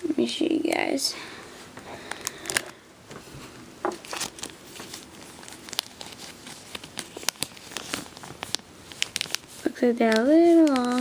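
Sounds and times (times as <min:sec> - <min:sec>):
plastic bags crinkling: 0:02.0 - 0:02.8, 0:03.8 - 0:11.0.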